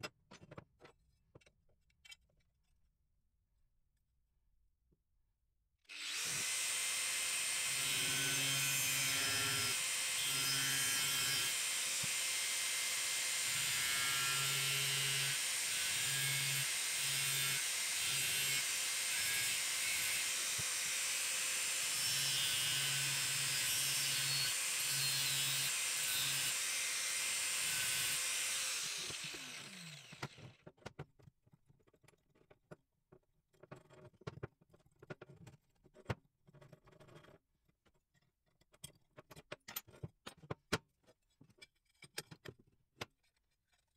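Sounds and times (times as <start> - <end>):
angle grinder cutting steel: 5.9 - 30.4.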